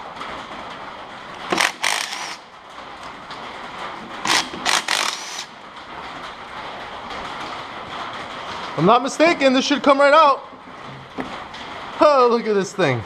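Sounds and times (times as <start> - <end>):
impact driver bursts: 1.5 - 2.4, 4.2 - 5.5.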